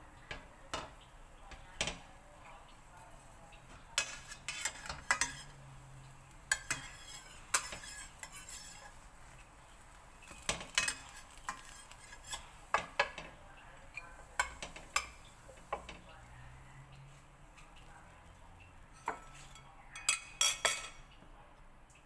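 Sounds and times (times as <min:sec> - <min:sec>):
metal spatula scraping frying pan: 0:03.9 - 0:17.9, 0:18.8 - 0:20.9.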